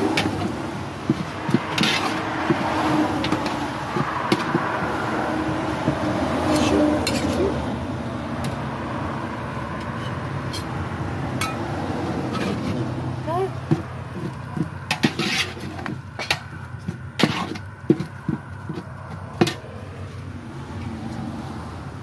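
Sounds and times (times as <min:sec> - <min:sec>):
metal utensils scraping a pot: 0:00.0 - 0:07.6, 0:09.8 - 0:10.7, 0:12.2 - 0:12.9, 0:13.7 - 0:19.6.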